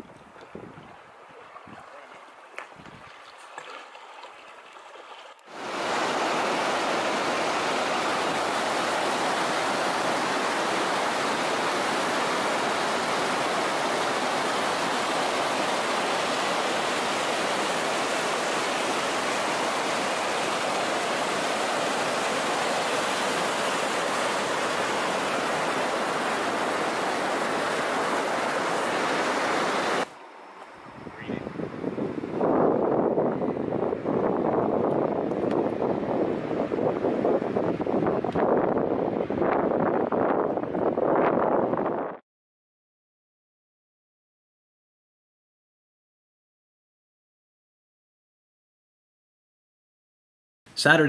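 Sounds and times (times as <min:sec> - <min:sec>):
whitewater rushing over rocks: 0:05.5 - 0:30.1.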